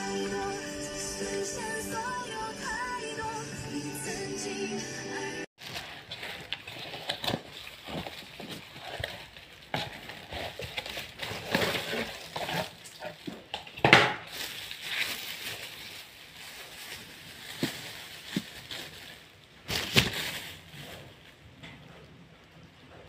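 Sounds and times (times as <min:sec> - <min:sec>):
cardboard and plastic packaging handled: 0:05.6 - 0:21.5.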